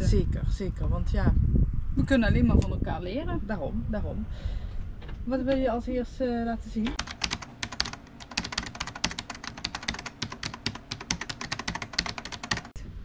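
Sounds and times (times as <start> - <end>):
keyboard key clicks: 6.9 - 12.7.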